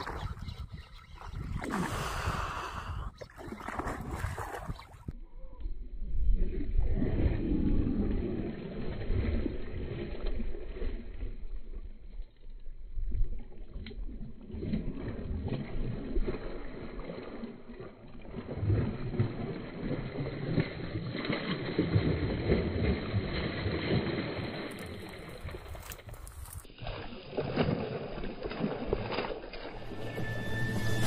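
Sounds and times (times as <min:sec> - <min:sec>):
fish splashing in water: 0:03.2 - 0:05.2, 0:14.2 - 0:31.0.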